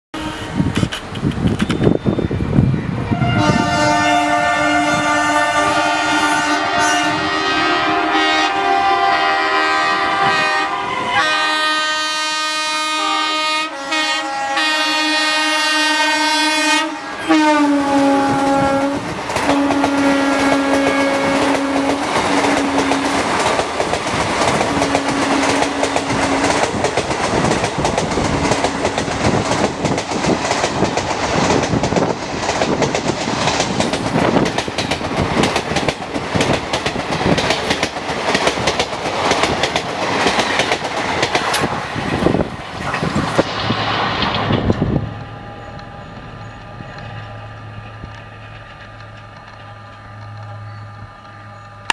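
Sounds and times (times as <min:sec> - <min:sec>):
train air horn: 0:00.1 - 0:00.8, 0:03.1 - 0:23.4, 0:24.7 - 0:26.7, 0:50.6 - 0:51.9
train wheels clacking on rails: 0:16.5 - 0:51.9.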